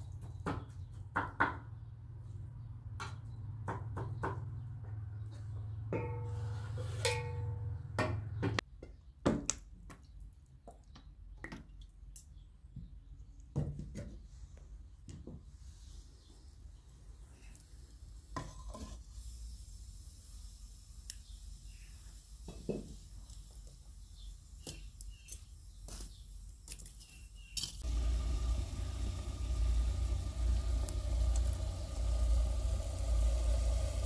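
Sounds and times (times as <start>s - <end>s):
faint hum: 27.2s - 34.0s
steady low rumble: 27.8s - 34.0s.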